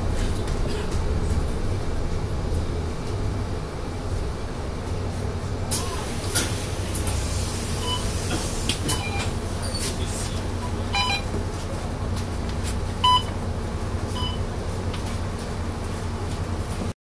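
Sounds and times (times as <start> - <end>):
bus diesel engine idling: 0.0 - 16.9
card reader beeps: 10.9 - 11.3, 13.0 - 13.3.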